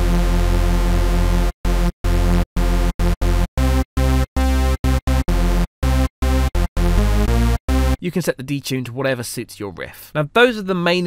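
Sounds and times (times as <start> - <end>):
buzzy synth riff: 0.0 - 8.0.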